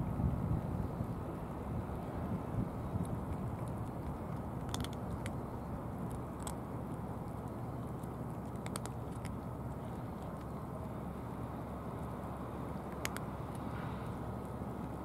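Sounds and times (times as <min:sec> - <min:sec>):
low background noise: 0:00.0 - 0:15.0
cats crunching dry kibble: 0:02.8 - 0:10.8.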